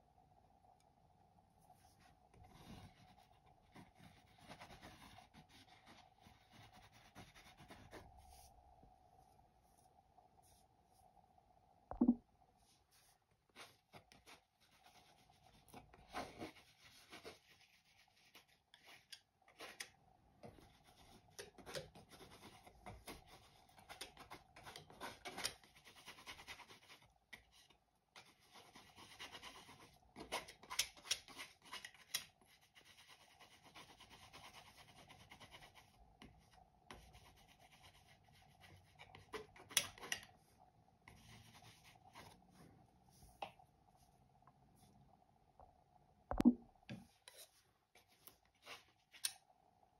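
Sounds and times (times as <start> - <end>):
palette knife scraping paint: 2.0 - 8.5, 13.5 - 36.0, 36.9 - 40.3.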